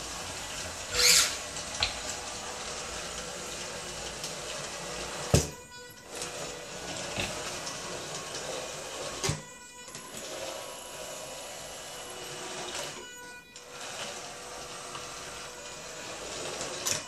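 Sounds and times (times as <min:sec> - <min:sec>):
electric motors whirring: 0:00.0 - 0:17.0.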